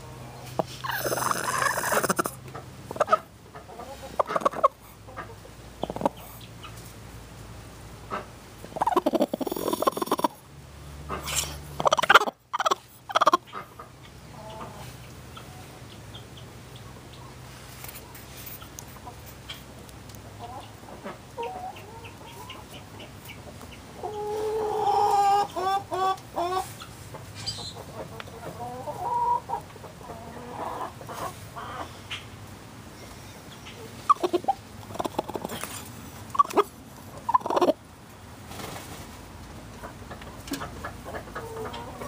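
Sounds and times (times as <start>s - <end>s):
hen growling and clucking: 0.0s - 6.8s, 8.1s - 10.4s, 11.1s - 15.7s, 24.0s - 26.7s, 27.5s - 31.9s, 33.7s - 37.8s, 40.5s - 42.0s.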